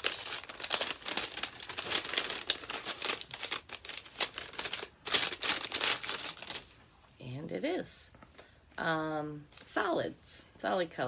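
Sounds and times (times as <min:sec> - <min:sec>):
paper packaging crinkling: 0:00.0 - 0:06.8.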